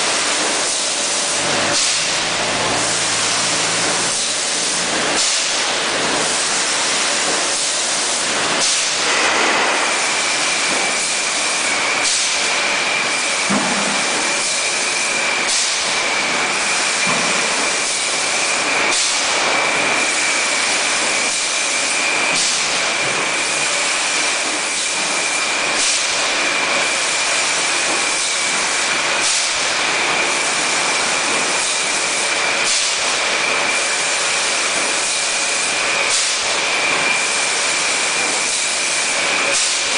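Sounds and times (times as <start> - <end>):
machinery running: 0.0 - 7.6.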